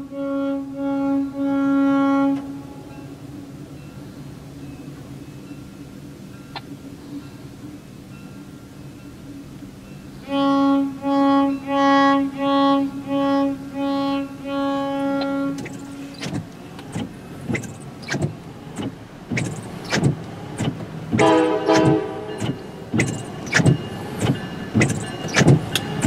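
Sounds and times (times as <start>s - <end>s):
horn short toots: 0.0s - 2.9s, 10.3s - 16.4s, 21.2s - 23.8s
multi-note horn: 0.0s - 2.9s, 10.2s - 16.2s, 21.2s - 22.4s
windshield wipers squeaking: 14.9s - 26.0s.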